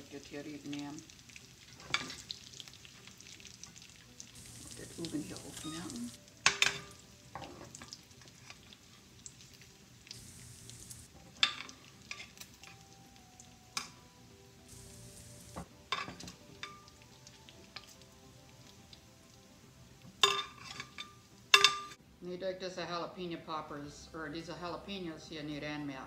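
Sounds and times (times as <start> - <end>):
bacon sizzling in a pot: 0.0 - 22.4
metal spoon clinking against pot: 6.4 - 7.5, 20.2 - 22.0.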